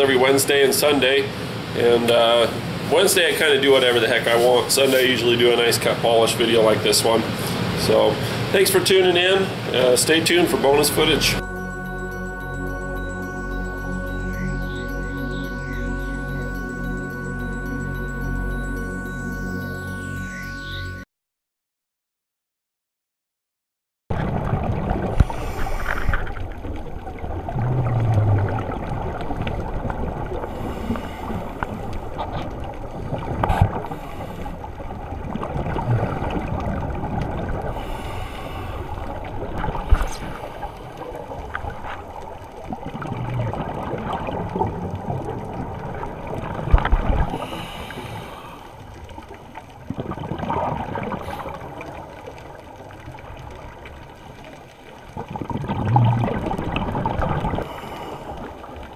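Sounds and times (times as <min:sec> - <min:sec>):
muffled water hiss: 0:00.0 - 0:20.5, 0:24.2 - 0:58.9
underwater exhaled bubbles gurgling: 0:24.1 - 0:58.9.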